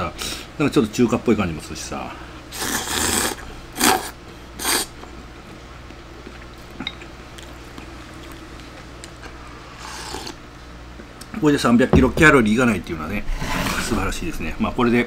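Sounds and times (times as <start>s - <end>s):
man slurping noodles: 2.6s - 4.9s, 9.8s - 10.4s.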